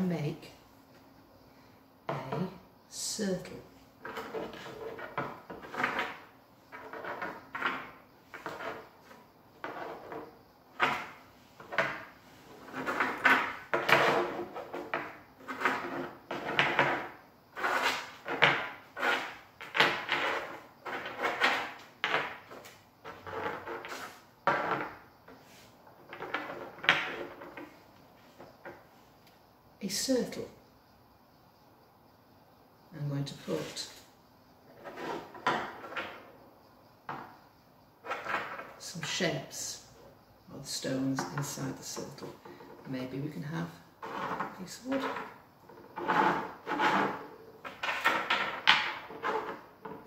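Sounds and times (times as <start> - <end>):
stones scraping and clacking on table: 4.0 - 28.8, 34.7 - 36.4, 38.0 - 38.8, 41.1 - 50.0.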